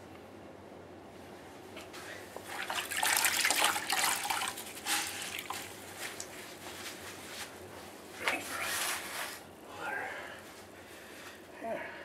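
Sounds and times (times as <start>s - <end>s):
water splashing into a bucket: 2.4s - 5.7s.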